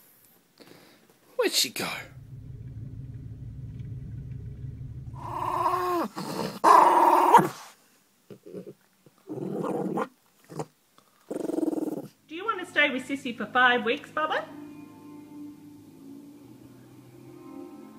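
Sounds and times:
dog growling low: 2.1 - 7.6, 8.3 - 10.7, 11.3 - 12.2
dog howling whines: 5.2 - 7.5.

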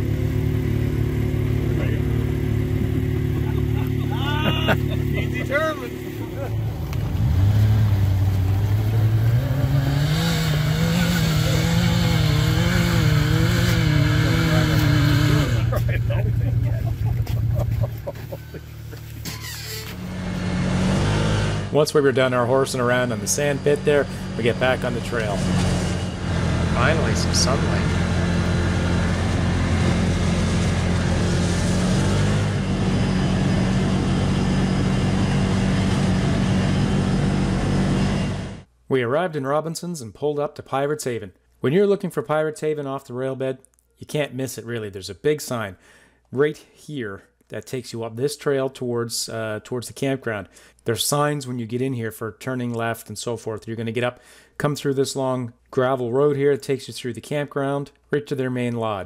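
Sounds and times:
engine working under load: 0.0 - 21.8, 22.5 - 38.7.

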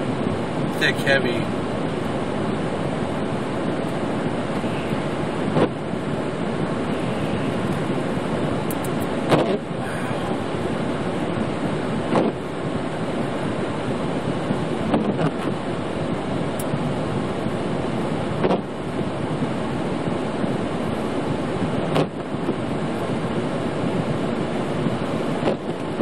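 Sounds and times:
defrost fan blowing: 0.0 - 26.0
road and engine noise inside truck: 0.0 - 26.0
short clicks: 8.7 - 9.4.

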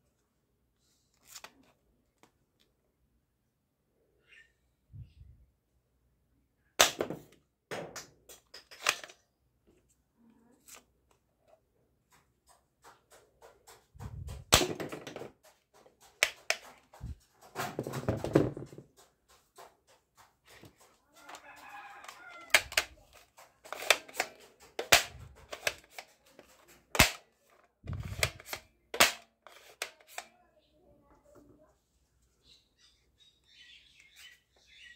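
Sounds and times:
plastic toy gun clicking: 8.0 - 9.2, 16.2 - 17.0, 22.0 - 30.3
plastic rattling: 12.9 - 19.0, 22.0 - 30.2.

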